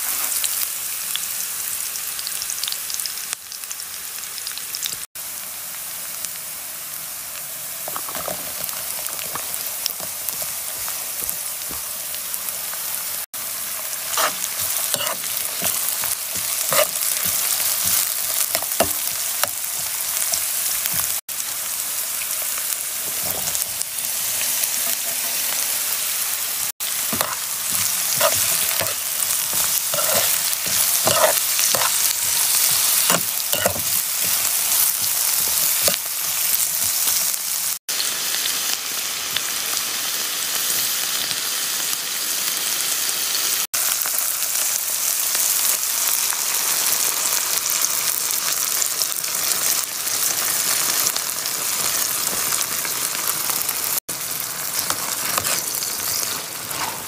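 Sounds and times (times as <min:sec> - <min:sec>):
vegetables sizzling in oil: 0:00.0 - 0:57.0
spoon stirring and scraping pan: 0:14.0 - 0:21.2, 0:26.9 - 0:37.4, 0:54.7 - 0:57.0.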